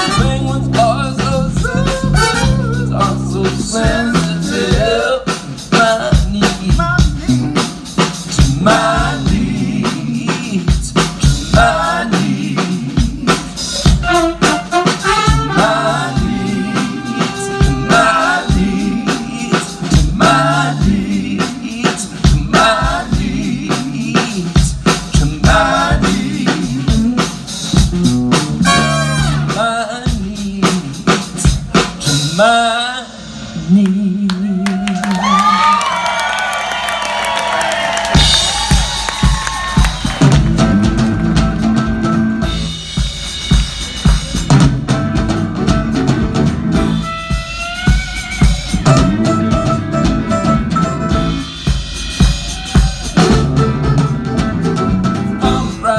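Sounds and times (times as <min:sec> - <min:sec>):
person singing: 0:00.0 - 0:07.7, 0:32.0 - 0:35.9, 0:55.1 - 0:55.9
live band playing: 0:00.0 - 0:55.9.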